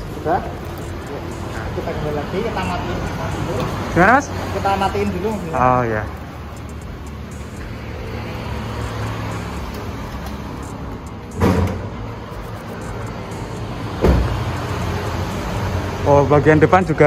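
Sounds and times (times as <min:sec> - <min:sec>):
car engine idling: 0:00.0 - 0:17.0
sharp thumps from car: 0:11.3 - 0:12.0, 0:14.0 - 0:14.5.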